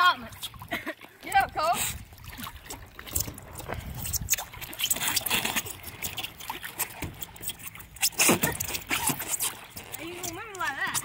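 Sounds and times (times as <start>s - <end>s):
water lapping and trickling: 0.0s - 11.0s.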